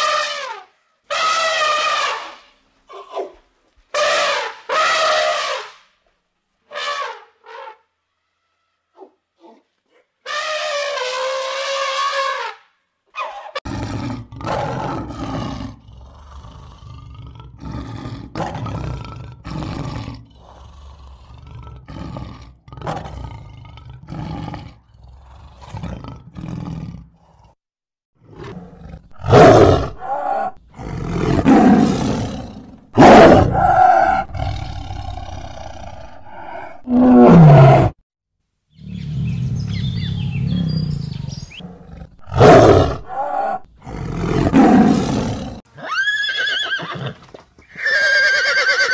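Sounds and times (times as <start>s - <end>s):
lion roaring: 13.6s - 27.6s, 28.2s - 38.0s, 38.8s - 45.6s.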